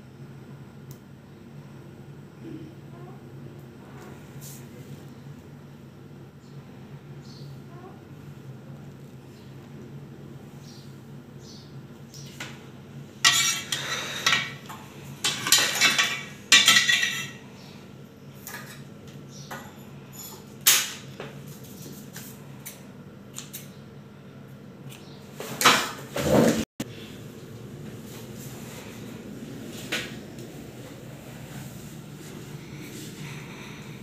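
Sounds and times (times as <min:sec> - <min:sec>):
tools knocking and scraping on glass: 0:15.2 - 0:17.4
low steady hum: 0:26.8 - 0:34.0.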